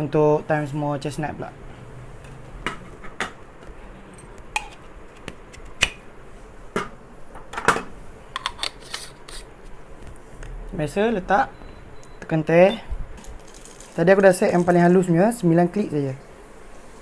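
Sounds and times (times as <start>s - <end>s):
metal grinder parts clicking and knocking: 13.2s - 14.8s.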